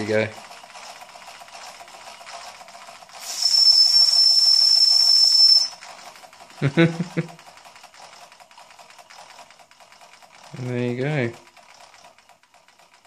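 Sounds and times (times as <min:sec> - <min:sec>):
steam engine hissing: 0:02.9 - 0:06.7
steam whistle blowing: 0:03.2 - 0:05.8.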